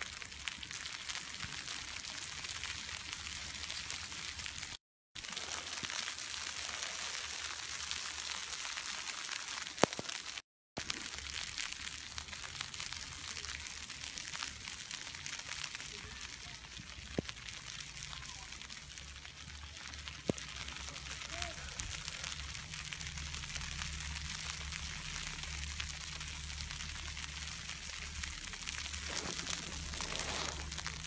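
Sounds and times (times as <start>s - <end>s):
snowflakes pattering on microphone: 5.2s - 22.8s, 23.4s - 31.0s
wind and falling snow hiss: 28.7s - 31.0s.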